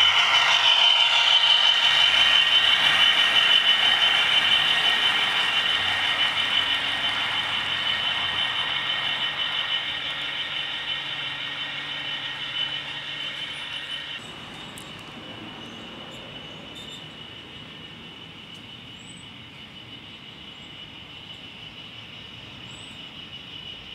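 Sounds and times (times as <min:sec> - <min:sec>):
model train wheels rattling: 0:00.0 - 0:15.2
high motor whine: 0:00.0 - 0:23.6.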